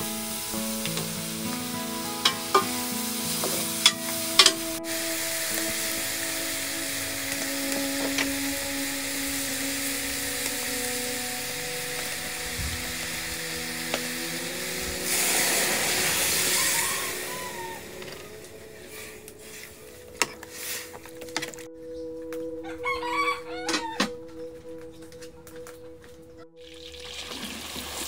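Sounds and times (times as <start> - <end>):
loud hiss: 0.0 - 19.5
rooster crowing: 14.9 - 18.6, 22.6 - 24.3.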